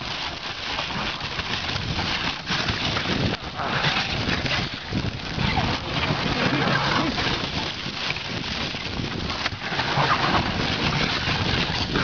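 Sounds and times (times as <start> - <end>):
dog sled rushing over snow: 0.0 - 12.0
wind on microphone: 0.0 - 12.0.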